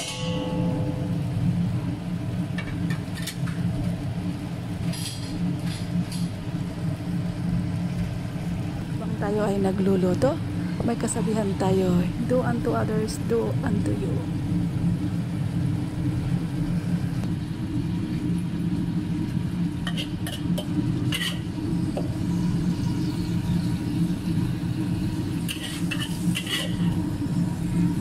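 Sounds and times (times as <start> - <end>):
steady low rumble: 0.0 - 3.0, 6.1 - 25.5
metal ladle scraping a wok: 19.8 - 21.5, 25.5 - 27.0.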